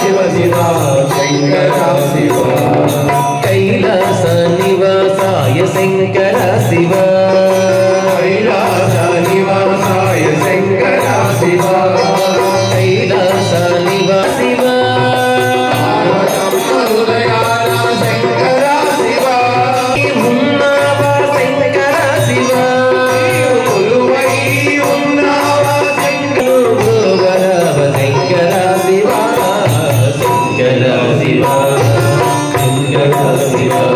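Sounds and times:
hand drum beat: 0:00.0 - 0:33.9.

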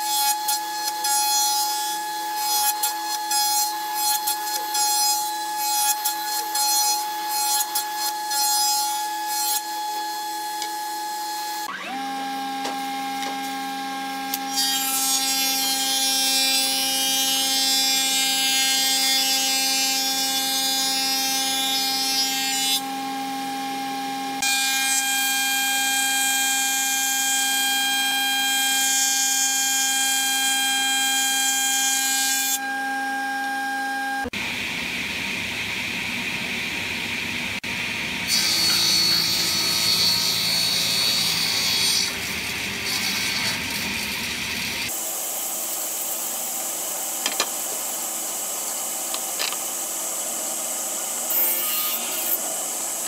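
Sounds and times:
thickness planer whining: 0:00.0 - 0:53.0
planer cutting noise: 0:36.8 - 0:45.0
jointer cutterhead whining: 0:37.6 - 0:44.9
board cutting rasp: 0:38.3 - 0:42.2, 0:42.8 - 0:43.9.

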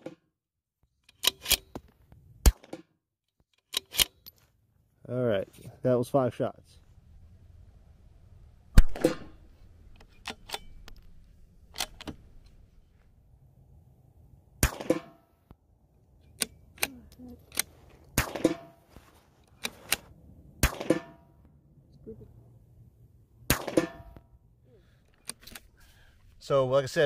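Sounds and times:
rifle bolt clicks: 0:01.0 - 0:01.8, 0:03.5 - 0:04.4, 0:10.0 - 0:11.1, 0:11.7 - 0:12.2
rifle shots: 0:02.4 - 0:02.8, 0:08.8 - 0:09.4, 0:14.6 - 0:15.2, 0:18.1 - 0:18.8, 0:20.6 - 0:21.3, 0:23.5 - 0:24.2.

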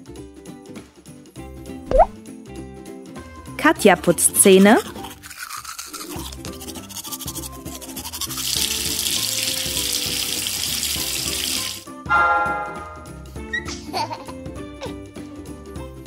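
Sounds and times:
light background music: 0:00.0 - 0:16.0
toothbrush scrubbing: 0:03.7 - 0:11.8
short chime: 0:12.1 - 0:13.3.

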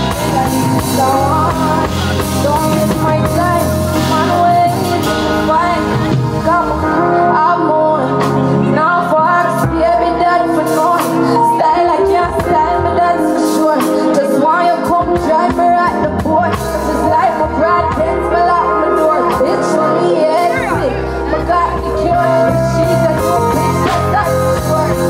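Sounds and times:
bass-heavy beat: 0:00.0 - 0:07.2, 0:20.4 - 0:25.0
person singing: 0:00.0 - 0:25.0.

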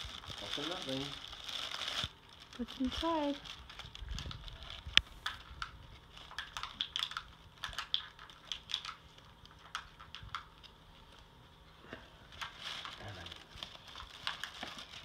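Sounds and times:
tissue paper crinkling: 0:00.0 - 0:07.2, 0:12.2 - 0:15.0.

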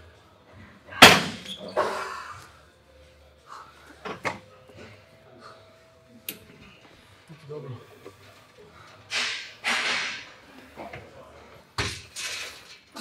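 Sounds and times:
weights clanking down: 0:09.0 - 0:11.0.

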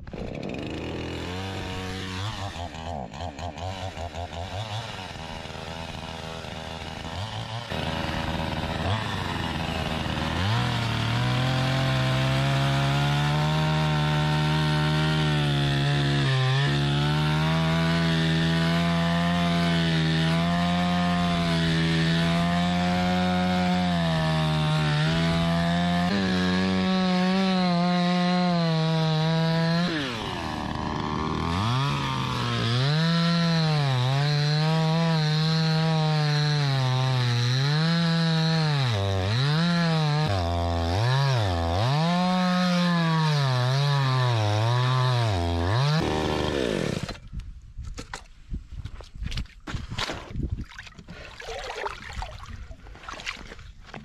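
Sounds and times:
chainsaw cutting through ice: 0:00.0 - 0:47.4.

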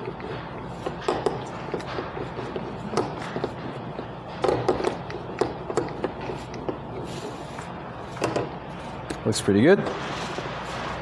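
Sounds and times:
rolling pin rubbing over dough: 0:04.7 - 0:09.1.

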